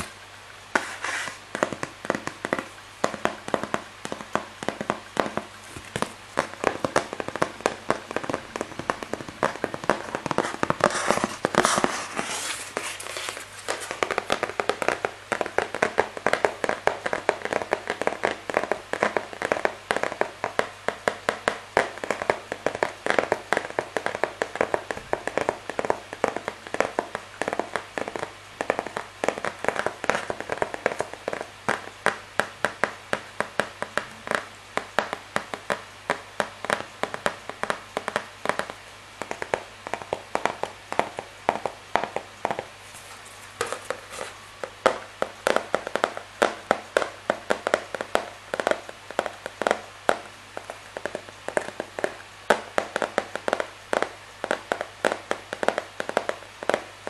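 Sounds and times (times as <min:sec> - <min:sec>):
handling and rustling: 0:42.8 - 0:44.6.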